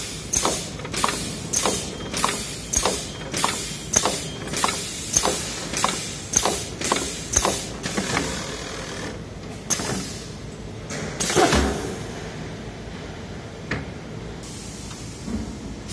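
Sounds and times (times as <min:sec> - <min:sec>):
machine running: 0:00.0 - 0:10.3
machine clunk: 0:00.3 - 0:08.3
sharp mechanical clicks: 0:00.3 - 0:10.0.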